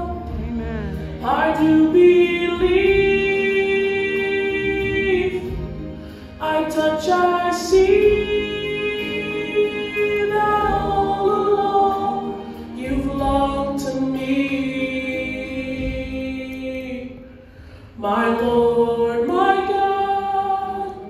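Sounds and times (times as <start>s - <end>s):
young man singing: 0.0s - 5.7s, 6.4s - 17.2s.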